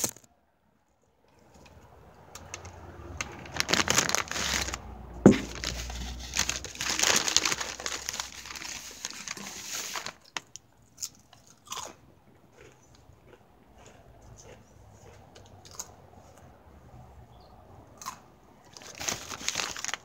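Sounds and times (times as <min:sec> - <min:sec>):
rustling crinkling handling noise: 0:02.4 - 0:10.6, 0:18.7 - 0:20.0.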